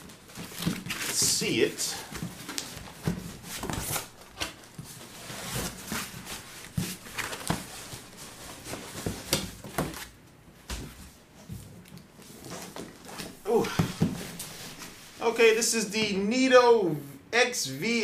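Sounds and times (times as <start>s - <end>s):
cardboard boxes scraping and rustling: 2.1s - 10.1s.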